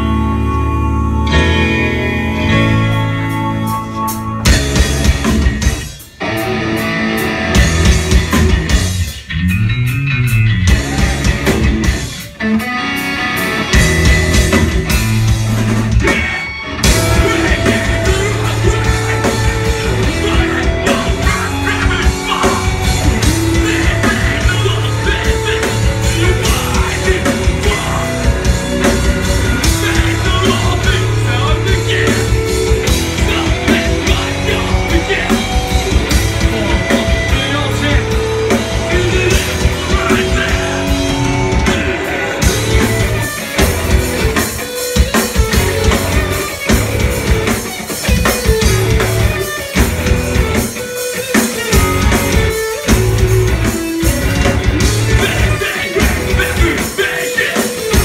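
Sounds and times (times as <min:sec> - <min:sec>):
bass: 0:00.0 - 0:58.0
distorted guitars: 0:00.0 - 0:58.0
drums: 0:00.0 - 0:58.0
vocals: 0:15.9 - 0:43.7, 0:54.4 - 0:58.0.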